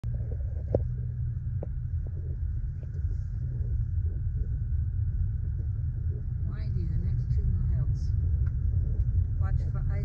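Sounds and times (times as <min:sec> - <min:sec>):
car driving rumble: 0:00.0 - 0:10.0.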